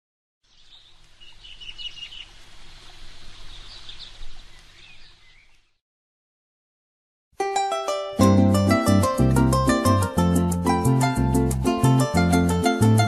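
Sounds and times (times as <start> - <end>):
birds chirping: 0.4 - 5.8.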